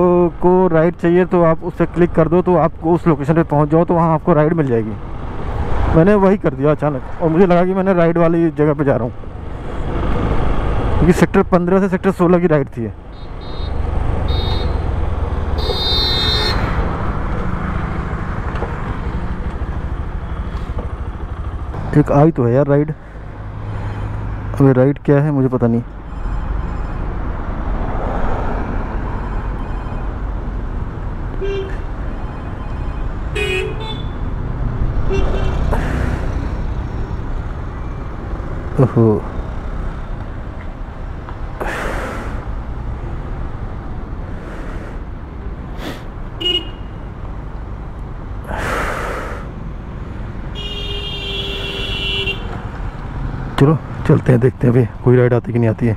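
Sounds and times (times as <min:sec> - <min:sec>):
road traffic passing: 0:00.0 - 0:55.9
vehicle horn toot: 0:13.1 - 0:14.9, 0:15.6 - 0:16.7, 0:31.4 - 0:31.8, 0:33.3 - 0:34.2, 0:35.1 - 0:35.7, 0:46.4 - 0:47.0, 0:50.6 - 0:52.5
breathy whoosh: 0:44.3 - 0:46.1.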